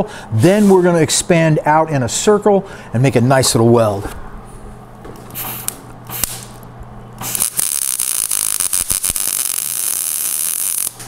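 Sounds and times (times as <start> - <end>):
low electrical hum: 0.0 - 11.0
welder arc crackling hiss: 5.3 - 6.6, 7.2 - 11.0.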